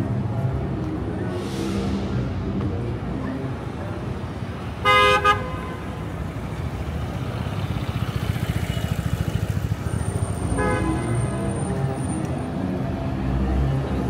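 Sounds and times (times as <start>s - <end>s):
rumble of passing cars: 0.0s - 14.0s
faint car horn: 4.8s - 6.0s, 10.5s - 11.2s.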